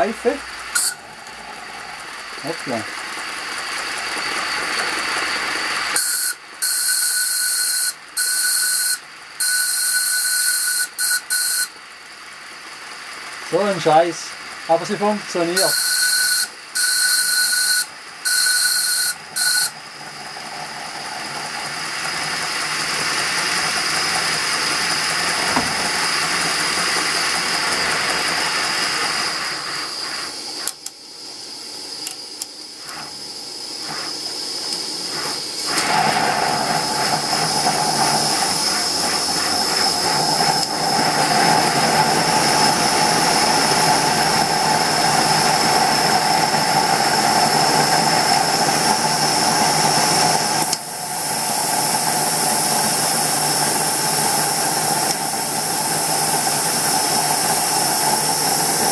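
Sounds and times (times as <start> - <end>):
escaping steam hissing: 0.0 - 11.7, 12.4 - 30.7, 32.6 - 58.9
steam whistle toots: 0.8 - 1.0, 6.0 - 11.8, 15.6 - 19.8
steady whistling tone: 3.6 - 11.7, 15.5 - 19.8.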